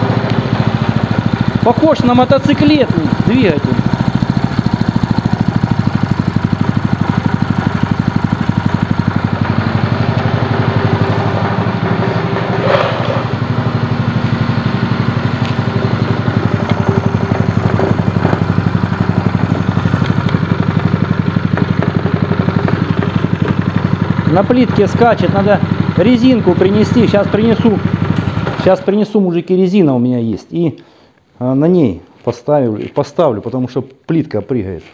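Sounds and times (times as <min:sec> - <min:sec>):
small engine idling: 0:00.0 - 0:29.0
short clatter: 0:12.2 - 0:13.4.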